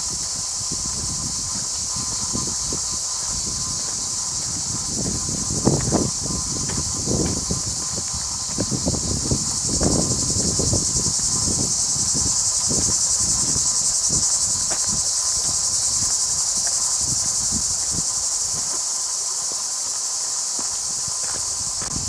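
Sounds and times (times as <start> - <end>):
footsteps on path: 0.0 - 22.0
high-pitched insect buzzing: 0.0 - 22.0.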